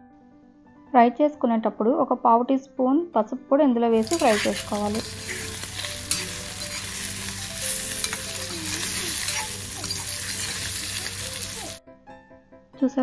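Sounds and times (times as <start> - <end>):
potatoes sizzling in oil: 4.0 - 11.8
spatula scraping pan: 4.0 - 11.8.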